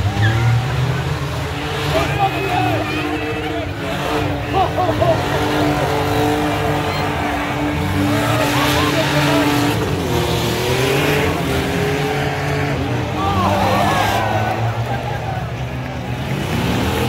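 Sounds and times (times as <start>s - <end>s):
car engines running hard: 0.0s - 17.0s
crowd shouting: 0.0s - 17.0s.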